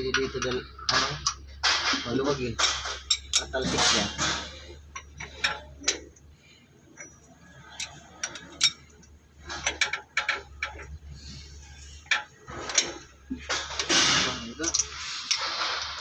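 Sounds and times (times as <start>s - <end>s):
ratchet wrench clicking: 14.6s - 16.0s.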